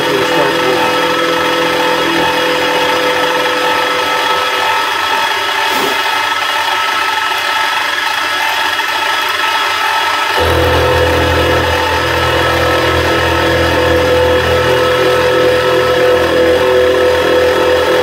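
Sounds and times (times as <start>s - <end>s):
milling machine motor whine: 0.0s - 18.0s
small cooling fan: 0.0s - 18.0s
end mill scraping metal: 10.4s - 18.0s.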